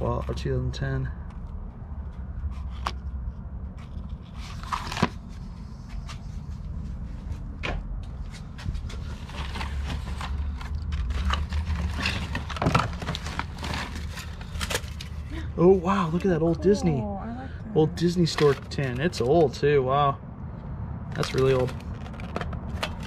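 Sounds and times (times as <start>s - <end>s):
paper rustling: 3.8s - 6.6s, 8.3s - 15.3s, 18.2s - 19.4s, 21.2s - 23.0s.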